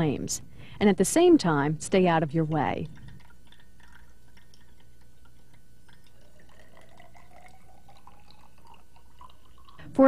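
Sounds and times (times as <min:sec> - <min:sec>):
steady low hum: 0:00.0 - 0:10.0
liquid trickling into glassware: 0:02.6 - 0:10.0.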